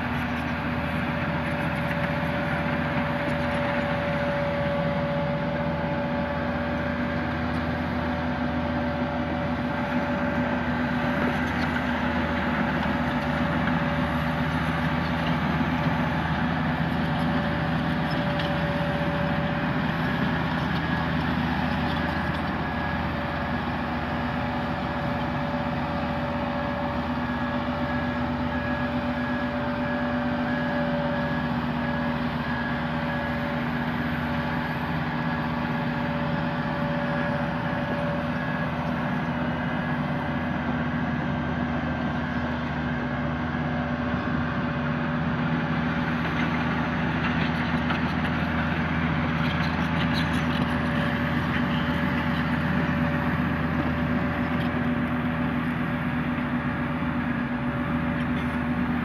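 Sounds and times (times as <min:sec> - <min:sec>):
roller diesel engine running: 0:00.0 - 0:59.0.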